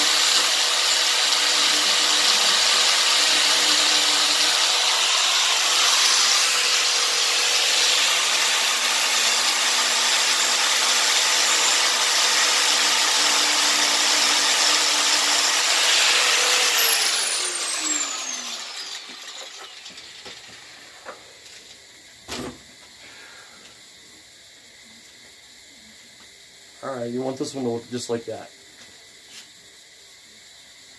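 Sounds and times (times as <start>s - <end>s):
angle grinder grinding metal: 0.0s - 21.2s
grinder spinning down: 0.0s - 21.2s.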